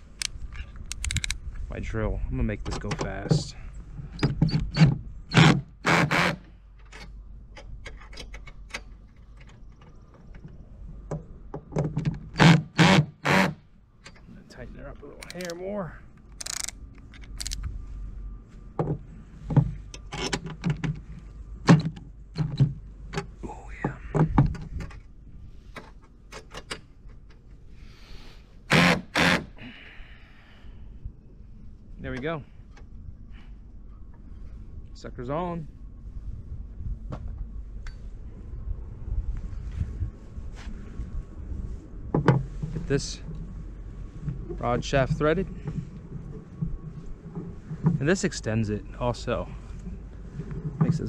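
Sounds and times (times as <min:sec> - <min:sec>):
faint steady whine: 0:00.0 - 0:51.0
cordless drill driving screw: 0:04.7 - 0:06.4, 0:12.4 - 0:13.6, 0:28.7 - 0:29.5.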